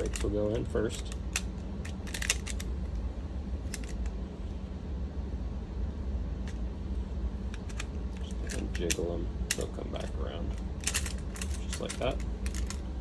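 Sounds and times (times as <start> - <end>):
metal clicks and rattles: 0.0 - 2.7, 3.7 - 4.1, 7.6 - 12.9
steady low hum: 0.0 - 13.0.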